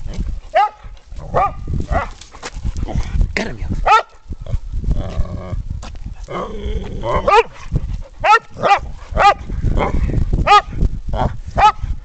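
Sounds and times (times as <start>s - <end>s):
dogs barking high-pitched: 0.5s - 2.1s, 3.8s - 4.2s, 7.1s - 7.6s, 8.2s - 10.7s, 11.6s - 11.8s.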